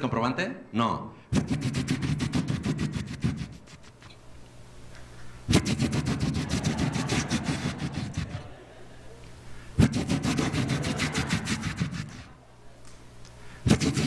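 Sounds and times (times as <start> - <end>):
audience laughing: 5.9 - 12.4.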